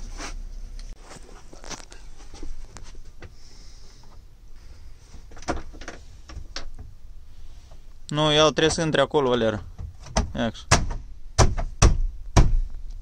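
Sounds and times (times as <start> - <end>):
rustling scrape: 1.0 - 3.2.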